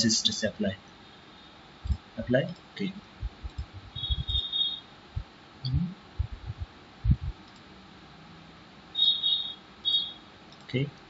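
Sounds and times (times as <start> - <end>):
faint steady hiss: 0.0 - 11.0
soft low thumps and knocks: 3.2 - 4.4, 5.2 - 7.4.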